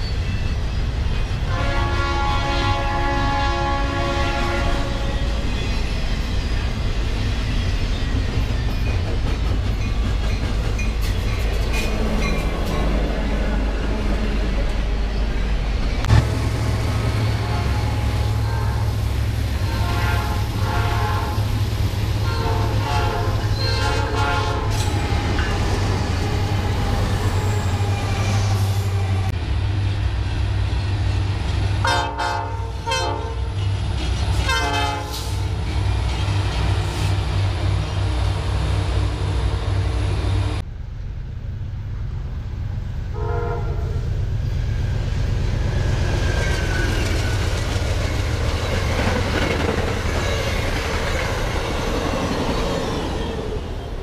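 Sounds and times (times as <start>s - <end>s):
freight train rumble and wheel clatter: 0.0s - 54.0s
locomotive horn blasts: 1.5s - 5.3s, 17.0s - 21.5s, 22.2s - 25.5s, 31.8s - 33.5s, 34.4s - 35.4s, 43.1s - 44.1s.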